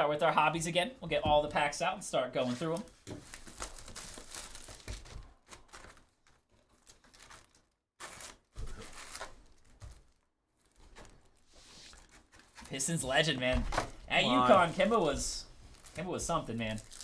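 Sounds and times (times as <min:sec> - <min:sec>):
cardboard rustling: 0:02.4 - 0:13.0
foil packs handled: 0:02.6 - 0:12.8, 0:14.5 - 0:17.0
plastic wrap crinkling and tearing: 0:02.6 - 0:12.8, 0:14.5 - 0:17.0.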